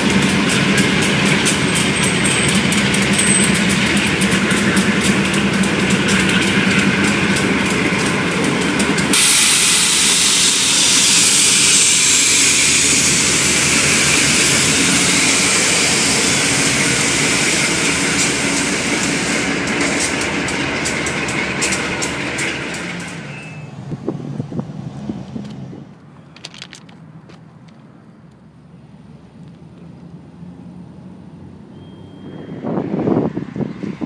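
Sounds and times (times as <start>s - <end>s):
train wheel clicks: 0.0s - 23.6s, 26.3s - 28.4s
diesel locomotives running: 0.0s - 34.0s.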